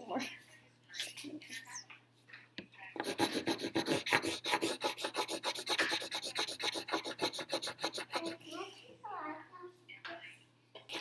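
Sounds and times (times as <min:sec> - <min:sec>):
pencil scratching on paper: 0:03.0 - 0:08.4.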